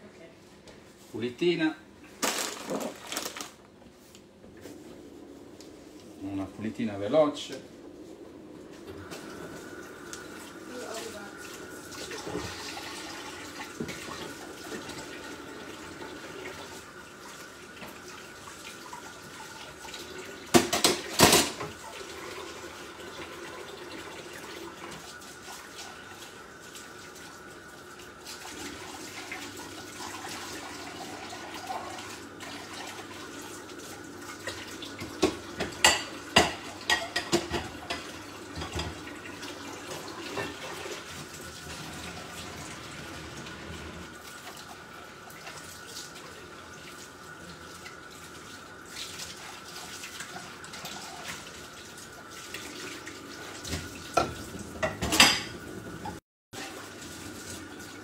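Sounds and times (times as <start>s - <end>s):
pots and utensils clattering: 2.2s - 3.5s, 20.5s - 21.8s, 34.4s - 39.1s, 39.9s - 42.3s, 53.6s - 56.2s
tap water running into sink: 8.8s - 58.0s.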